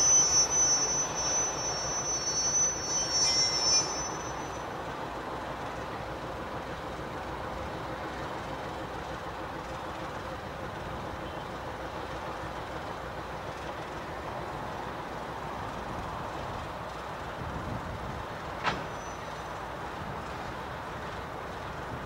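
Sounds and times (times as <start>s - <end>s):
diesel locomotives rolling past: 0.0s - 22.0s.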